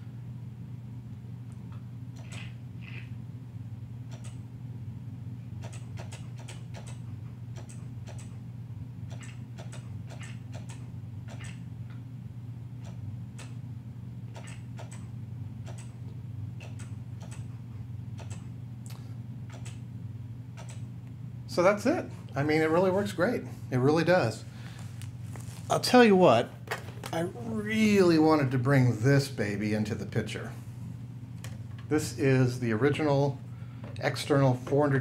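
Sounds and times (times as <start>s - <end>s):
mouse clicking: 9.1s - 11.6s.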